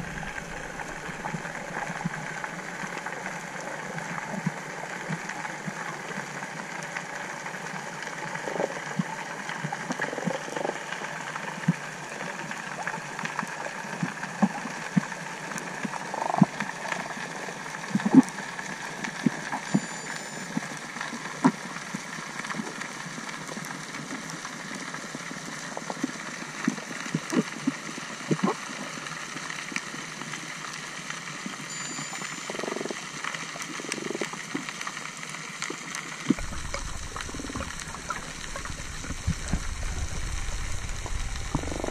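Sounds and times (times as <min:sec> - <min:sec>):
underwater hiss: 0:00.0 - 0:03.3, 0:36.4 - 0:41.9.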